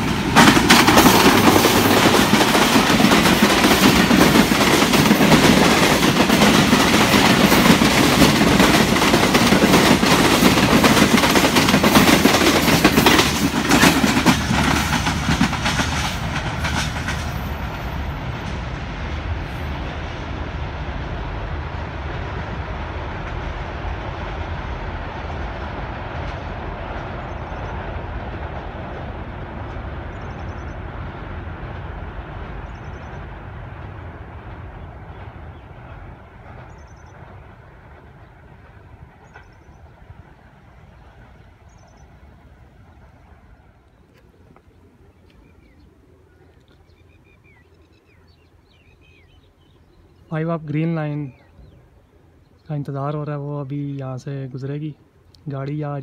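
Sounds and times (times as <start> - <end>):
passenger train rumbling: 0.0 - 56.0
small birds chirping: 34.7 - 42.4, 43.5 - 53.0.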